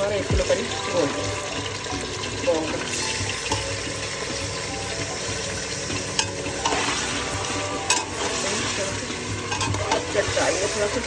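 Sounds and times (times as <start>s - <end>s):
meat sizzling in oil: 0.0s - 11.0s
metal spoon clinking against pot: 5.9s - 6.9s, 7.8s - 8.6s, 9.4s - 10.1s.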